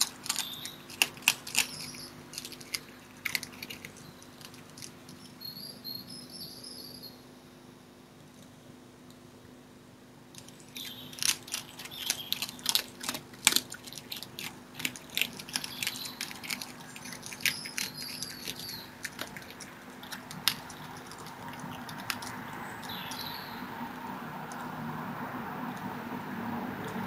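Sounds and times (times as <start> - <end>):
fox chewing meat: 0.0 - 5.4, 10.4 - 23.7
birds chirping: 0.0 - 7.6, 10.4 - 24.9.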